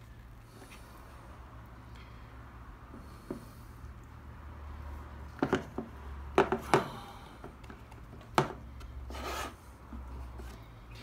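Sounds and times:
short scraping rub: 0:09.1 - 0:10.7.

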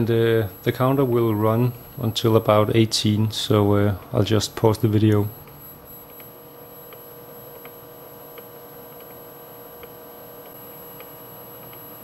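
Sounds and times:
tape recorder motor hum: 0:00.0 - 0:12.0
faint ticks: 0:05.1 - 0:12.0.

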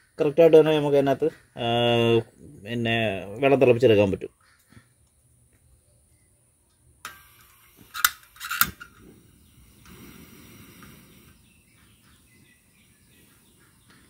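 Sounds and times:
sharp metallic clicks: 0:07.0 - 0:09.0.

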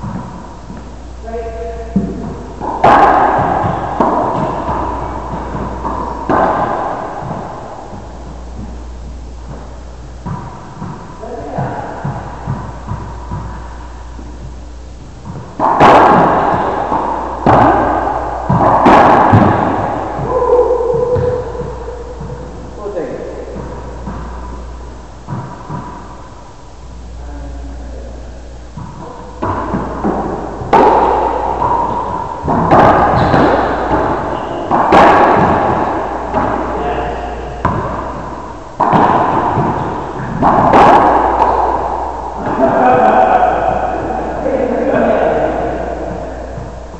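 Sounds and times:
ball hitting court walls: 0:00.0 - 0:26.4, 0:28.6 - 0:46.9
racquets striking ball: 0:00.0 - 0:26.4, 0:28.5 - 0:46.9.

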